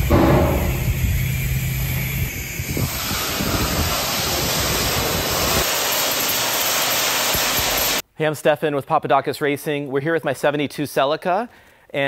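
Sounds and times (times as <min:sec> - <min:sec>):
sandblaster hissing: 0:00.0 - 0:08.0.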